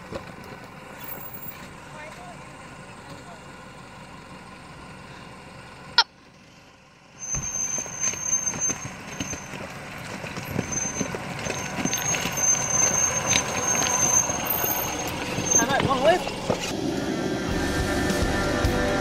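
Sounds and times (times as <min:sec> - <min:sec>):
vehicle engine running low: 0:00.0 - 0:19.0
high steady squeal: 0:07.1 - 0:09.7, 0:10.4 - 0:19.0
tyres crunching over stones: 0:07.4 - 0:16.7.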